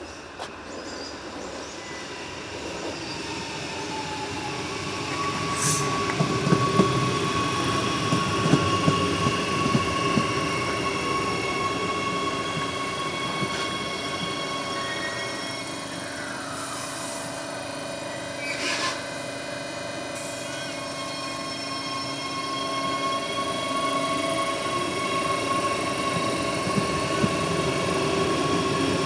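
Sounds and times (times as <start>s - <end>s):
electric train passing: 0.0s - 29.0s
train wheels clacking on track: 5.0s - 15.1s, 20.2s - 29.0s.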